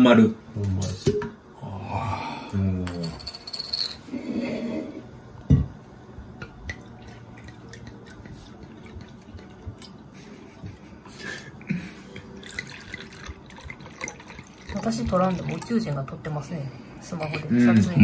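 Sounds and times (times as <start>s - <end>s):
liquid trickling into cups: 6.4s - 10.8s, 11.4s - 17.5s.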